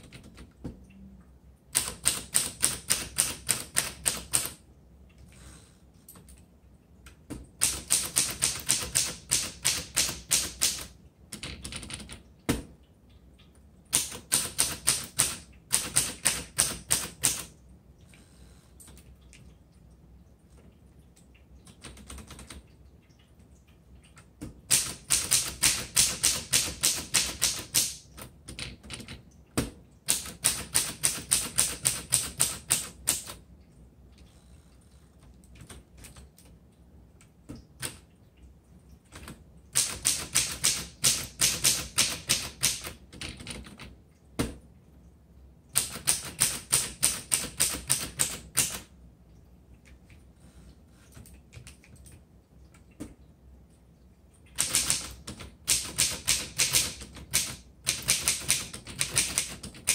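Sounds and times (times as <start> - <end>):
manual typewriter typing: 0.0 - 0.6, 1.7 - 4.6, 7.6 - 12.3, 13.9 - 17.6, 21.7 - 22.7, 24.6 - 29.2, 30.1 - 33.4, 39.1 - 44.0, 45.7 - 48.9, 54.5 - 59.9.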